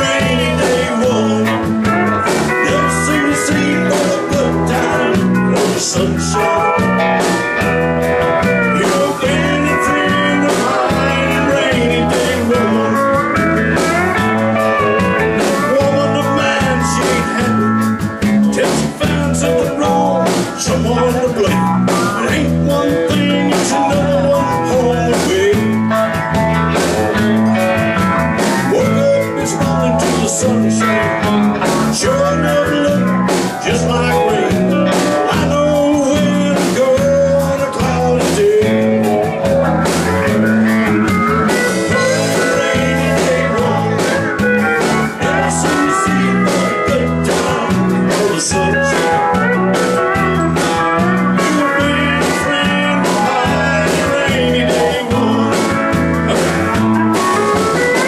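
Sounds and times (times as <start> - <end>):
bass: 0.0 - 58.0
electric guitar: 0.0 - 58.0
man singing: 0.0 - 58.0
steady drum beat: 0.0 - 58.0.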